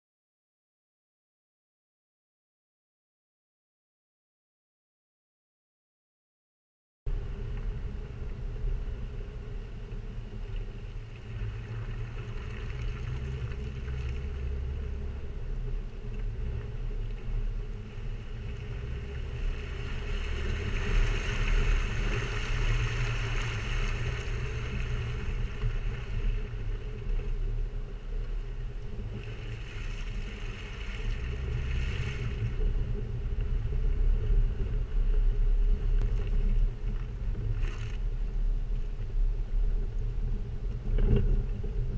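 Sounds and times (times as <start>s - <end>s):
car engine rumbling: 7.1s - 41.9s.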